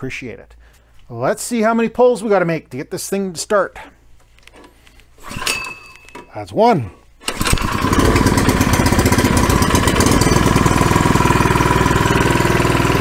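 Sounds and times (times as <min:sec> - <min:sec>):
recoil starter pull: 0:07.2 - 0:13.0
small engine running fast: 0:07.3 - 0:13.0.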